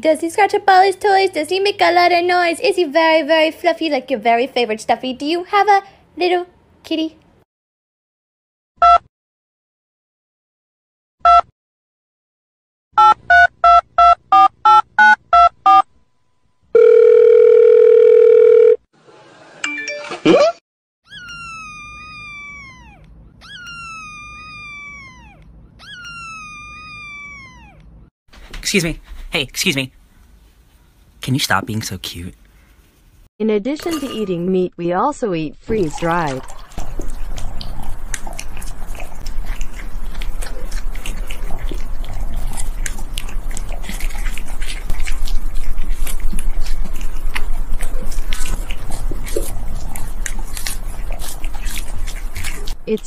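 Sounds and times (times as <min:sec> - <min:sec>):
kitten meowing: 0:21.1 - 0:27.9
cat chewing and licking food: 0:35.8 - 0:52.9.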